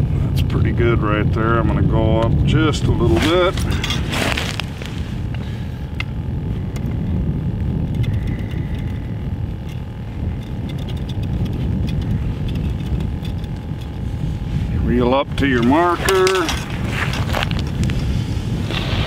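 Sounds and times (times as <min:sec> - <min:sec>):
wind buffeting microphone: 0:00.0 - 0:19.0
spool clicks: 0:07.8 - 0:14.0.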